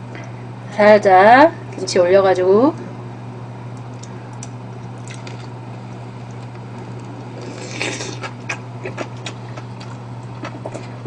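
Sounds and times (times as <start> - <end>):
steady low hum: 0.0 - 11.0
person chewing: 6.2 - 11.0.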